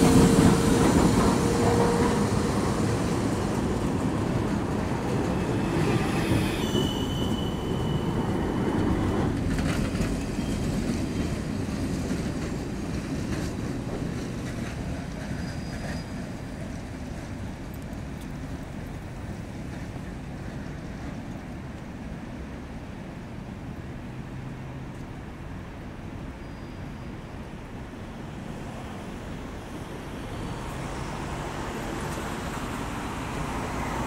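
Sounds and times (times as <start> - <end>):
steel wheels rumbling on track: 0.0 - 21.7
wheels clacking on rails: 0.0 - 23.0, 28.7 - 34.0
wheel squeal: 5.6 - 8.8, 15.2 - 16.4, 26.4 - 27.1.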